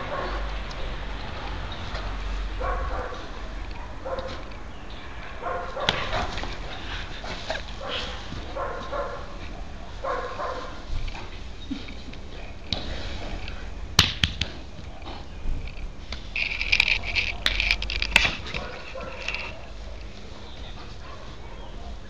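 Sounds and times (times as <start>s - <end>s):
dog barking and yelping: 1.4s - 4.4s, 5.3s - 6.9s, 7.8s - 10.8s, 18.5s - 20.1s.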